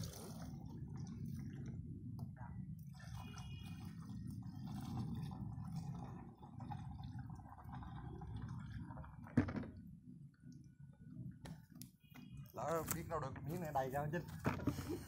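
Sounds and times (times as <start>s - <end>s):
water pouring into a pipe: 0.0s - 10.8s.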